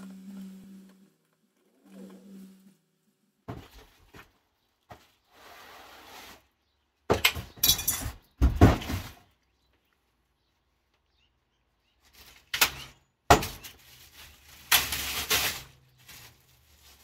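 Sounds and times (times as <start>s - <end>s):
low hum: 0.0s - 3.3s
cardboard and plastic rustling: 3.5s - 6.5s, 11.8s - 17.0s.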